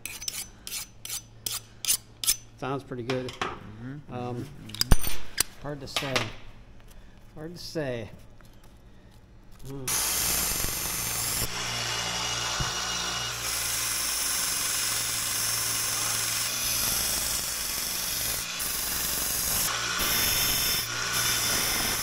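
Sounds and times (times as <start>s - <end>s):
belt sander motor humming: 9.9s - 22.0s
metal grinding on sanding belt: 9.9s - 22.0s.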